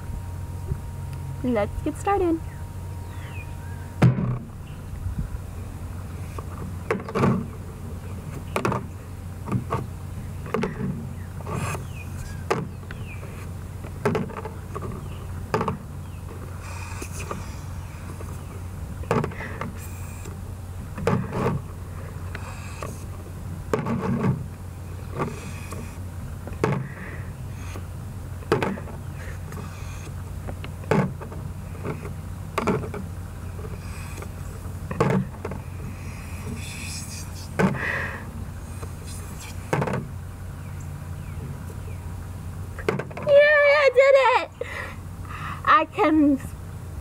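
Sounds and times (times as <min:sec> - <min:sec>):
drinking straw sucking air: 0:10.5 - 0:12.4, 0:16.5 - 0:18.4, 0:19.2 - 0:20.4, 0:21.0 - 0:23.2, 0:25.0 - 0:26.0, 0:28.6 - 0:30.2, 0:33.6 - 0:40.0.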